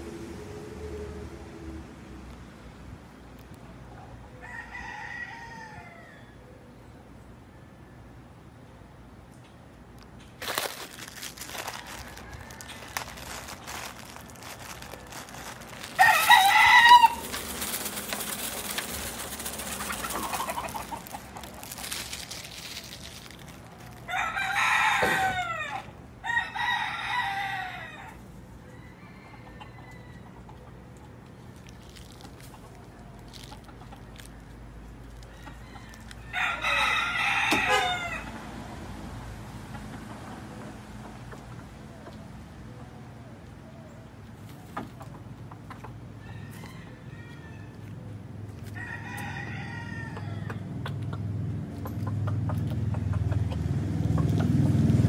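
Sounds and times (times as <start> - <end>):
roosters crowing: 4.2 - 6.6, 10.4 - 30.9, 31.9 - 38.8, 46.0 - 51.0.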